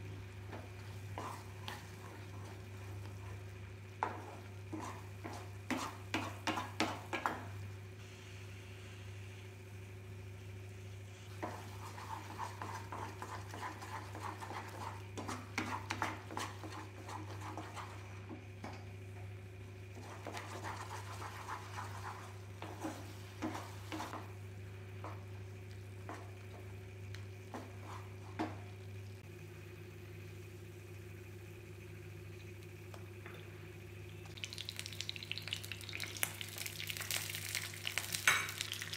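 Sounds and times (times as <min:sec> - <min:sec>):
steady low hum: 0:00.0 - 0:38.9
wooden spatula scraping a pan: 0:04.0 - 0:07.4, 0:11.3 - 0:18.1.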